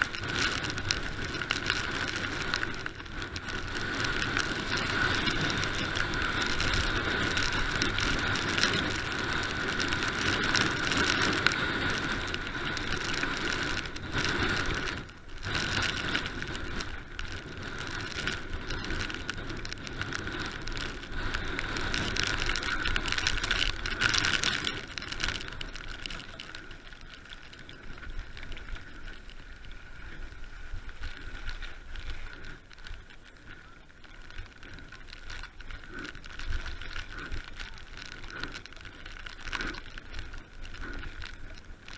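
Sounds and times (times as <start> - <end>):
bike tyres rattling over gravel: 0.0 - 41.9.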